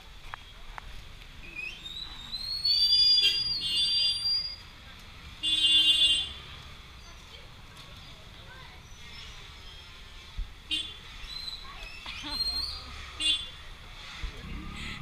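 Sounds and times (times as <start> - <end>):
street traffic: 0.0 - 15.0.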